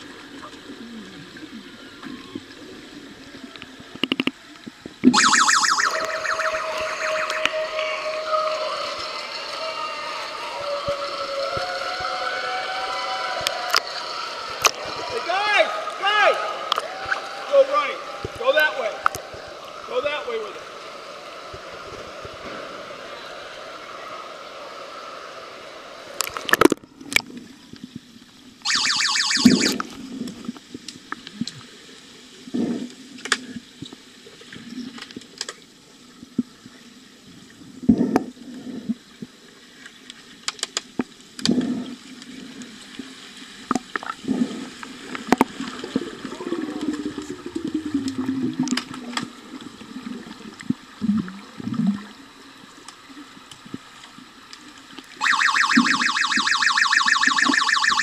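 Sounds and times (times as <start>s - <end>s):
water splash: 5.0s - 8.3s
underwater bubbling: 26.2s - 58.0s.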